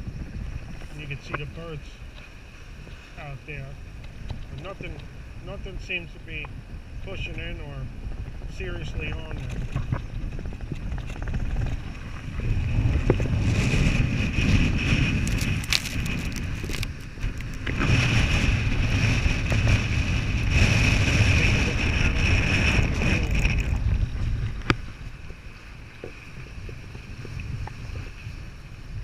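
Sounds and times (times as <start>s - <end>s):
gusty wind buffeting microphone: 0.0s - 29.0s
waves breaking on rocks: 8.7s - 28.6s.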